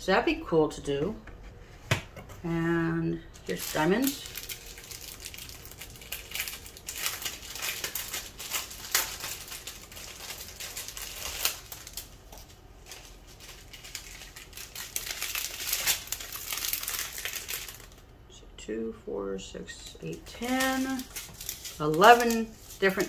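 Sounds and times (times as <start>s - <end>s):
plastic bags crinkling: 3.2s - 18.0s, 19.9s - 23.0s.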